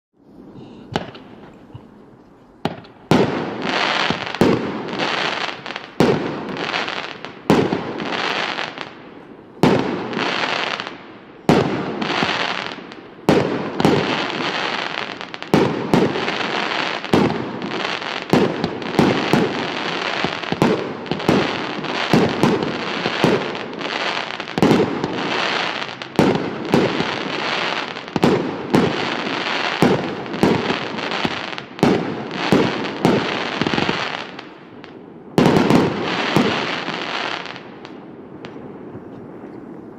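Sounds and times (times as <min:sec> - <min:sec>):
firework bangs with hiss: 0:00.6 - 0:01.6, 0:02.6 - 0:39.3
faint firework pops: 0:00.9 - 0:01.8, 0:02.6 - 0:03.2.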